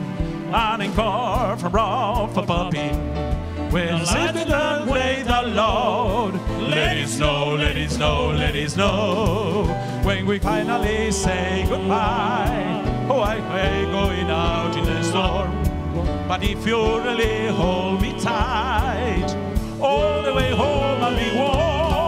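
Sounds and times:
bass line: 0:00.0 - 0:22.0
drums steady beat: 0:00.0 - 0:22.0
men singing with vibrato: 0:00.0 - 0:22.0.

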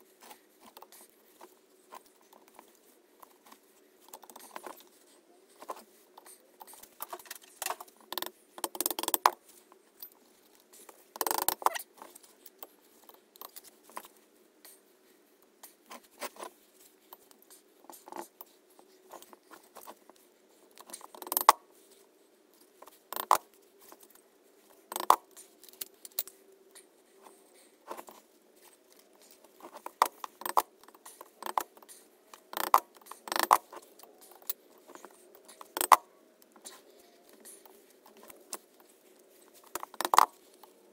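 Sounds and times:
metallic clicks and knocks: 0:06.6 - 0:09.4, 0:11.2 - 0:11.8, 0:20.8 - 0:21.6, 0:29.6 - 0:36.1.

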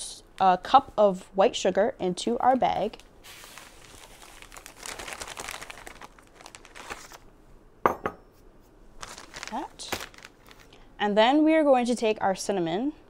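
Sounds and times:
plastic bag crinkling: 0:03.2 - 0:07.3, 0:09.0 - 0:10.8
sugar pouring into bag: 0:03.3 - 0:07.1.

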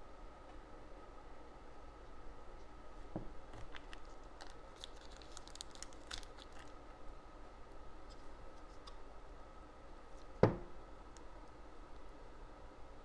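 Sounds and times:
towel crinkling: 0:03.6 - 0:06.8
soft knock: 0:10.4 - 0:10.7.

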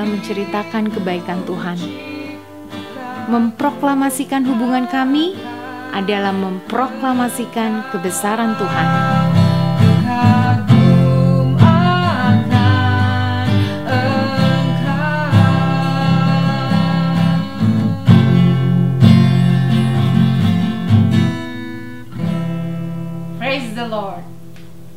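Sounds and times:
person singing with vibrato: 0:00.0 - 0:19.8
acoustic guitar strumming: 0:00.0 - 0:24.9.

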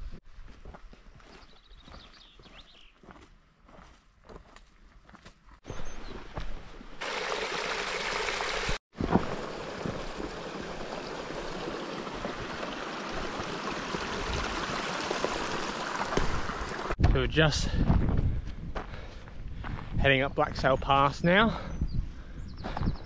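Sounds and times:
stream running: 0:07.0 - 0:17.0.

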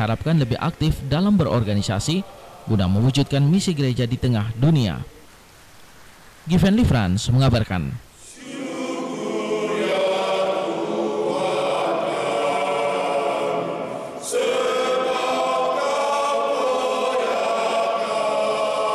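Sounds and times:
men's choir singing: 0:08.2 - 0:18.9.

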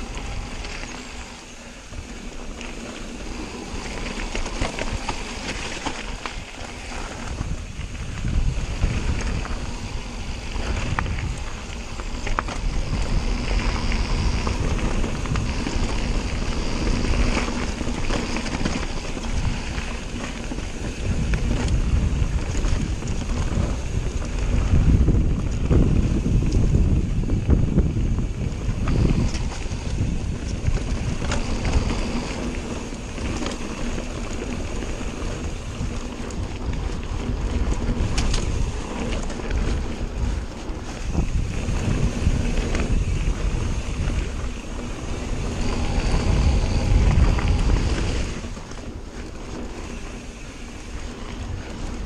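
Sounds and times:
mountain bike rattling: 0:00.0 - 0:52.0
tyres rumbling on gravel: 0:00.0 - 0:52.0
wind buffeting microphone: 0:00.0 - 0:52.0.

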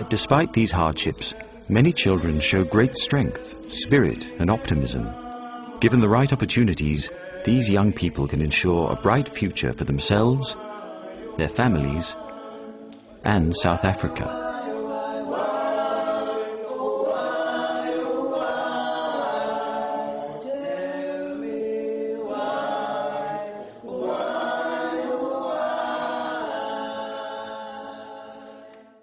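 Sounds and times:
men singing a cappella: 0:00.0 - 0:29.0.

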